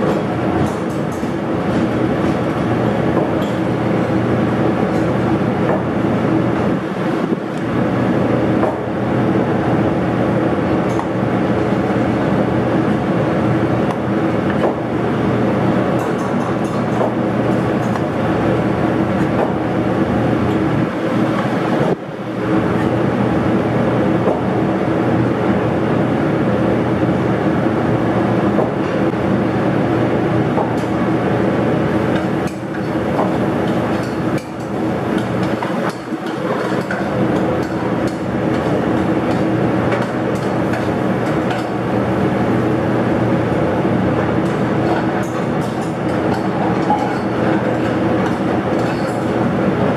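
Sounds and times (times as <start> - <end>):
exhaust hood fan roaring: 0.0 - 49.9
pans and utensils clinking: 44.4 - 49.2.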